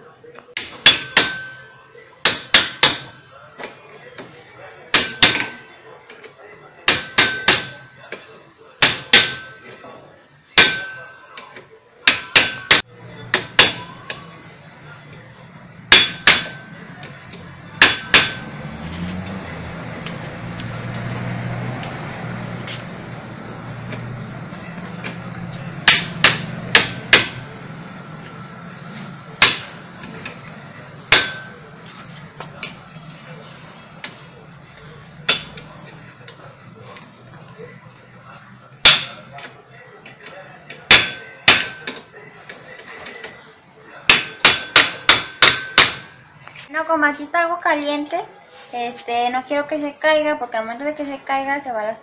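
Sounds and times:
hammer striking metal: 0:00.6 - 0:03.3, 0:04.9 - 0:05.7, 0:06.8 - 0:07.9, 0:08.8 - 0:09.6, 0:10.5 - 0:11.4, 0:12.0 - 0:14.2, 0:15.9 - 0:18.7, 0:25.0 - 0:27.5, 0:29.4 - 0:30.4, 0:31.0 - 0:31.7, 0:35.2 - 0:35.8, 0:38.8 - 0:39.4, 0:40.7 - 0:42.0, 0:44.1 - 0:46.2.

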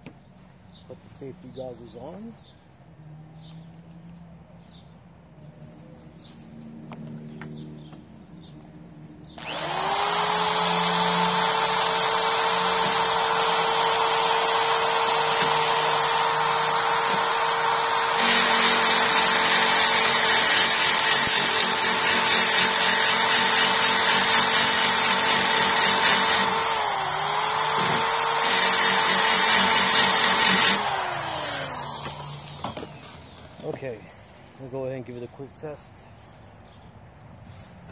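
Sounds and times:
drill bit grinding metal: 0:09.4 - 0:33.8
electric drill motor whining: 0:09.4 - 0:33.8.

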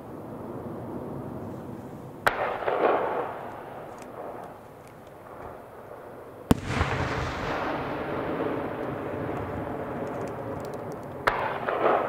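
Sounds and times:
firework bang: 0:06.5 - 0:09.2.

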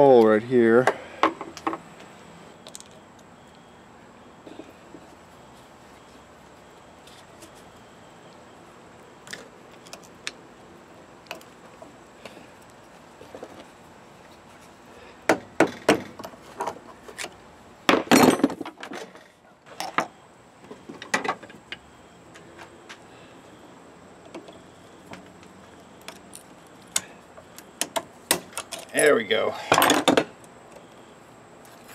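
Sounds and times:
metal tools clinking and knocking: 0:18.0 - 0:19.2.

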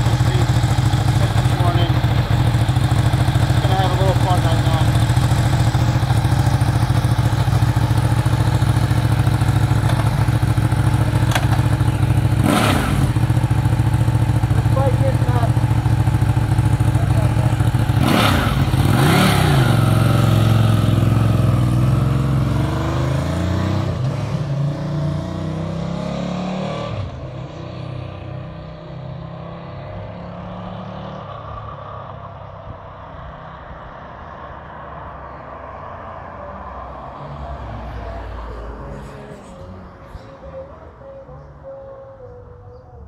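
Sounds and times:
motorcycle engine revving: 0:00.0 - 0:31.6
motorcycle accelerating away: 0:00.0 - 0:31.8.

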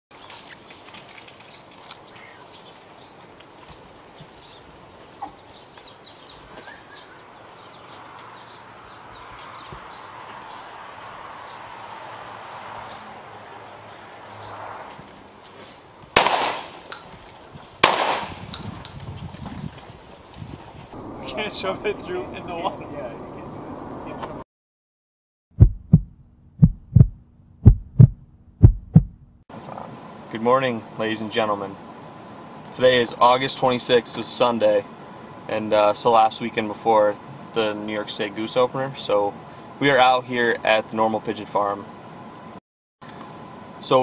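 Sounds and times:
shotgun shots with echo: 0:16.2 - 0:16.9, 0:17.8 - 0:18.5.

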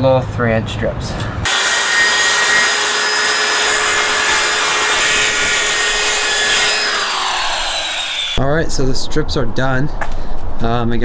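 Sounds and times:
circular saw cutting plywood: 0:01.5 - 0:08.4.

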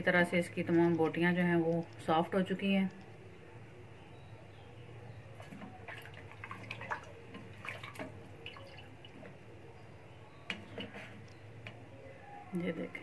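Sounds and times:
broth splashing and dripping: 0:05.4 - 0:09.4.

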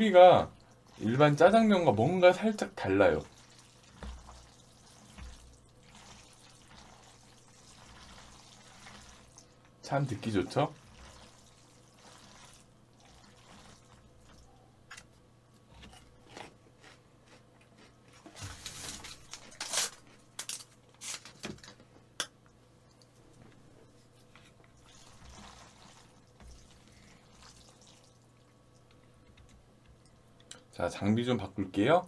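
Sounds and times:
wet squelching of noodles: 0:02.8 - 0:09.6, 0:10.5 - 0:14.6, 0:24.0 - 0:28.9.

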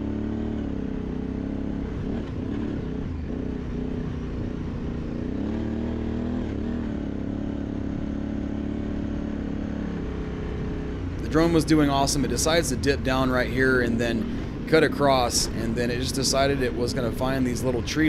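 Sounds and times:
motorcycle engine revving: 0:00.0 - 0:18.0.

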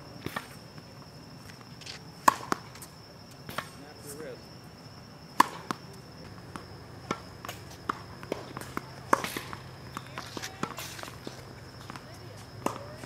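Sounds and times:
steady low hum: 0:00.0 - 0:13.0
tennis ball bouncing: 0:02.2 - 0:02.7, 0:05.4 - 0:13.0.

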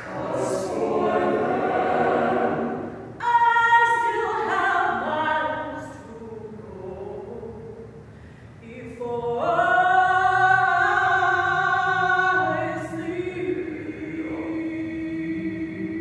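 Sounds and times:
choir singing held chords: 0:00.0 - 0:05.7, 0:09.5 - 0:16.0.

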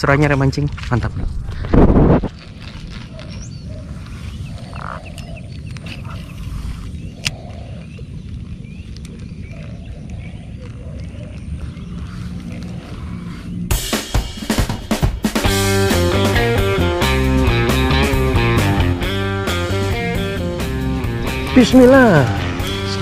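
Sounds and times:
low wind rumble on microphone: 0:00.0 - 0:13.8
small bird chirps: 0:02.4 - 0:13.7.

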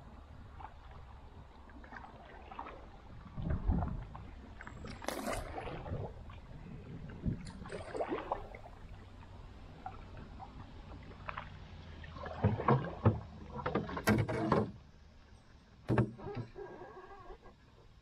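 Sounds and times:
paddle pulling through water: 0:00.0 - 0:18.0
sharp splashes and knocks: 0:04.6 - 0:06.1, 0:07.4 - 0:08.8, 0:11.0 - 0:14.8.

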